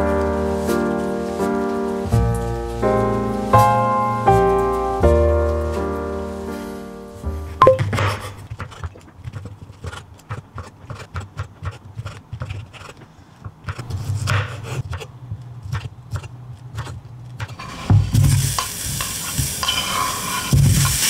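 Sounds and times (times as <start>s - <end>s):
knife chopping on wooden board: 13.7s - 15.0s
pieces clattering into pan: 18.1s - 21.0s.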